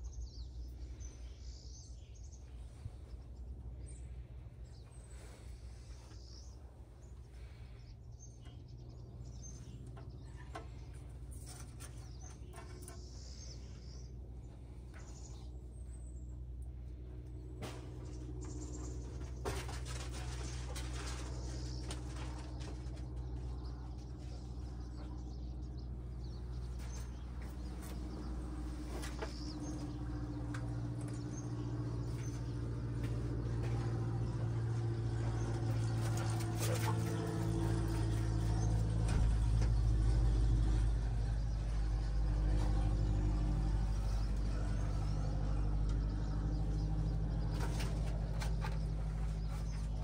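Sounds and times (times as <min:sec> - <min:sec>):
diesel engine idling: 0:22.5 - 0:50.0.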